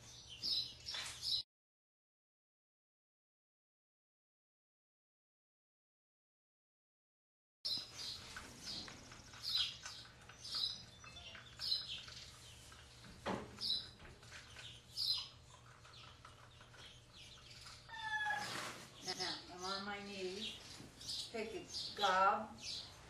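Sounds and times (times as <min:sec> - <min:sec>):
chickens clucking: 0:07.7 - 0:19.2.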